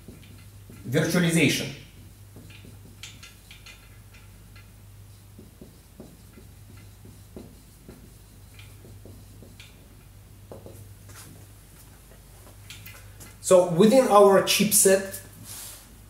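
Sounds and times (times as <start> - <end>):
marker scratching on whiteboard: 0.0 - 11.4
steady low hum: 0.0 - 16.0.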